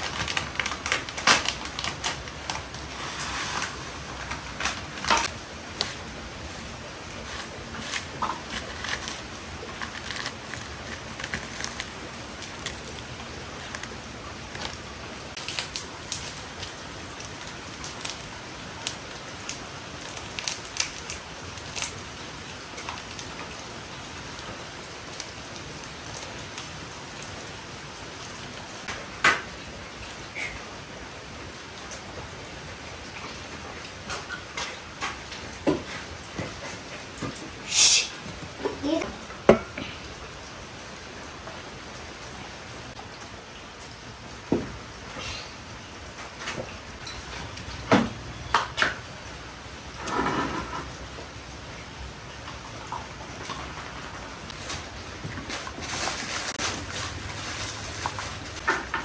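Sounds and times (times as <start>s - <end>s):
sachets being torn open: 0.0s - 2.6s, 7.4s - 14.0s
plastic packets crinkling: 0.0s - 2.9s, 4.1s - 22.1s, 54.5s - 58.6s
steady background hiss: 0.0s - 59.0s.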